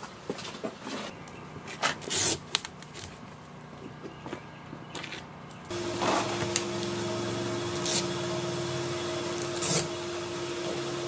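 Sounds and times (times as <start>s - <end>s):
steady low hum: 5.7s - 11.0s.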